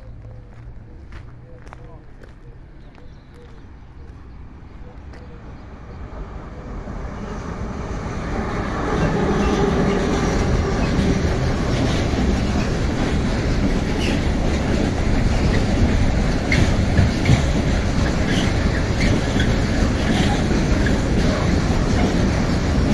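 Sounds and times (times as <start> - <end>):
freight wagons rolling by: 9.0 - 22.9
wheel clicks and squeaks on rails: 9.4 - 22.9.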